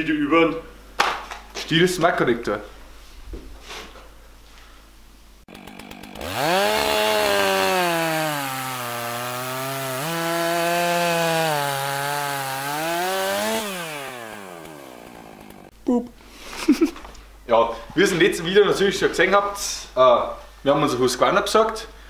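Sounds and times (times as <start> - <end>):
chainsaw engine revving: 5.5 - 15.7.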